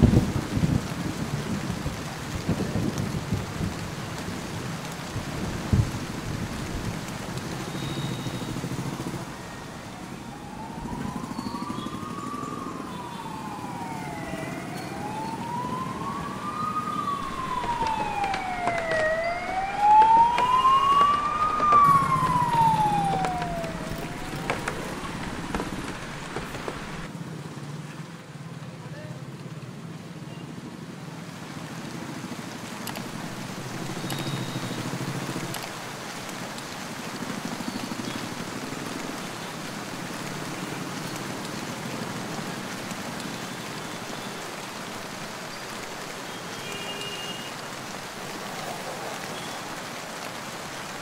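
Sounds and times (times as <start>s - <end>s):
steady rain: 0.0s - 51.0s
traffic on wet road: 0.0s - 51.0s
siren wailing: 7.5s - 27.1s.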